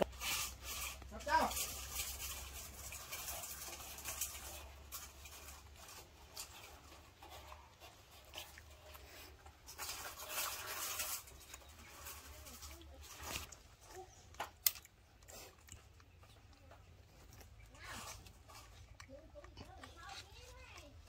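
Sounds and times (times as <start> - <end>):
scratching and rustling on wood: 0.0 - 21.0.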